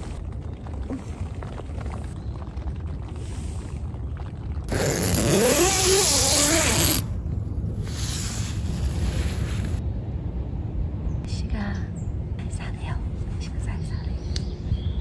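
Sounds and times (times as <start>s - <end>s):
tent door zipper opening: 4.7s - 7.1s
low rumble: 7.0s - 14.8s.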